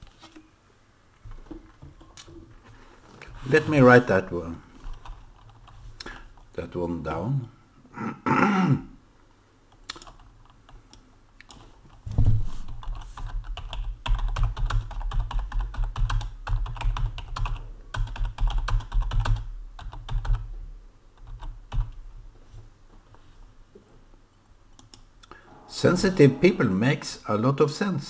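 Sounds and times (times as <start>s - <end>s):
typing on computer keyboard: 9.9s - 10.8s, 12.7s - 20.4s, 21.2s - 22.0s.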